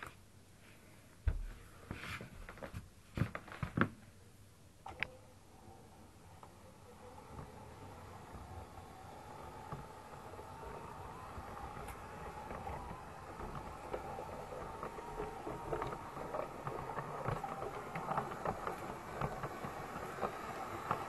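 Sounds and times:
model train motor whirring: 5.4 - 21.0
wheels clicking over rail joints: 5.8 - 21.0.

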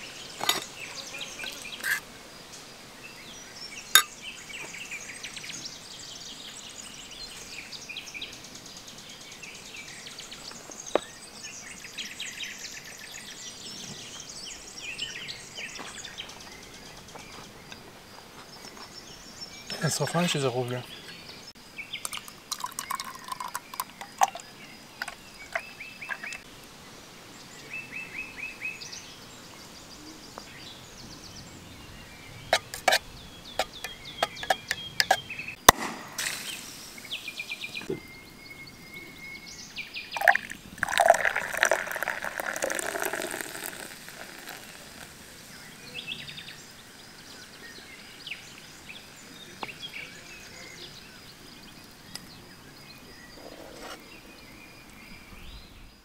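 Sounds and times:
small birds chirping: 0.0 - 56.0
sparkling water pouring and fizzing: 22.0 - 26.4, 36.2 - 37.2, 40.2 - 45.8
bottle opening click and hiss: 35.7 - 37.5.

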